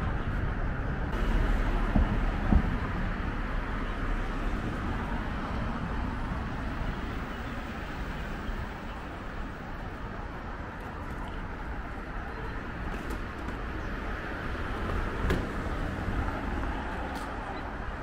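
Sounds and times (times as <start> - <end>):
cars driving past: 0.0 - 9.6.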